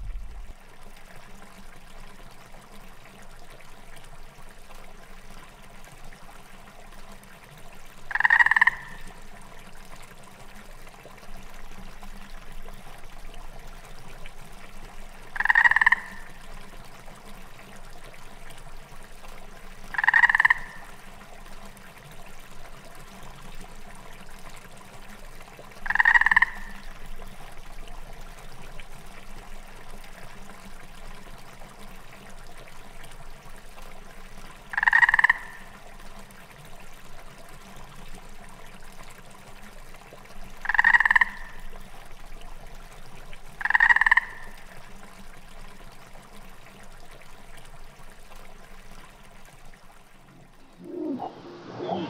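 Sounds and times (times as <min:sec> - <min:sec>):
trickling water: 0:00.0 - 0:52.0
frog croaking: 0:08.1 - 0:09.1, 0:15.4 - 0:16.3, 0:19.9 - 0:20.9, 0:25.8 - 0:26.8, 0:34.7 - 0:35.7, 0:40.6 - 0:41.6, 0:43.6 - 0:44.6.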